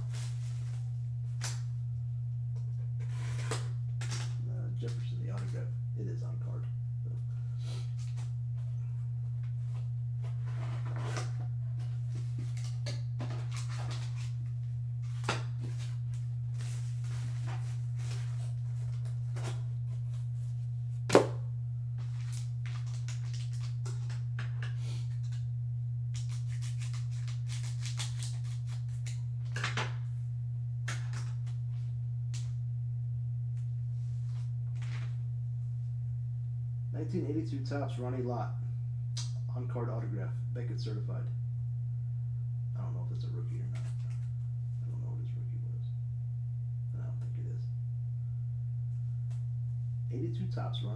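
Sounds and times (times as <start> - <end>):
low hum: 0.0 - 50.9
packaging rustling: 22.0 - 24.2.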